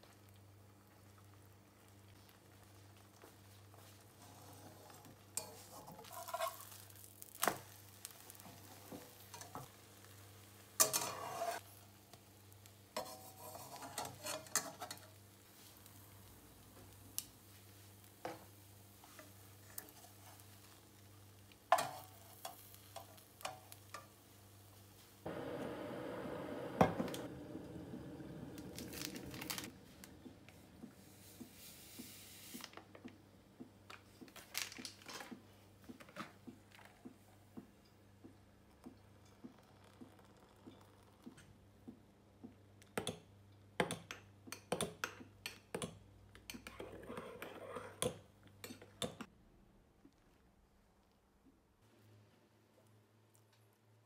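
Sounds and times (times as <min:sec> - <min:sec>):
egg frying in pan: 0:04.8 - 0:32.8.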